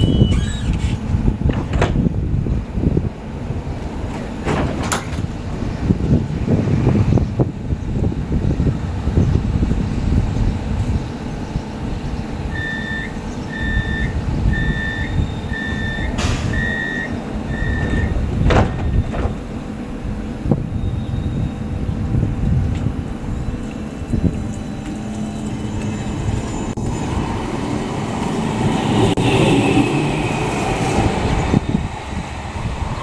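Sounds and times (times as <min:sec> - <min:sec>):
tram doors shutting thump: 0:00.0 - 0:02.2, 0:03.8 - 0:05.4, 0:14.6 - 0:19.7
electronic warning beeps: 0:12.5 - 0:18.2.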